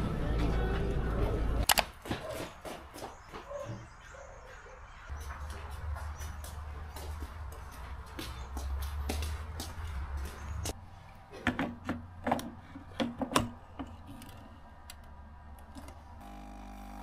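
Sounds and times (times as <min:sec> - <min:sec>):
espresso machine pump humming: 0:16.2 - 0:17.0.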